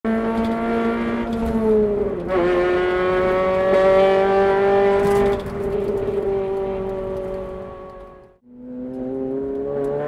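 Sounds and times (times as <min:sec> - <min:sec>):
car engine and exhaust in tunnel: 0:00.1 - 0:10.0.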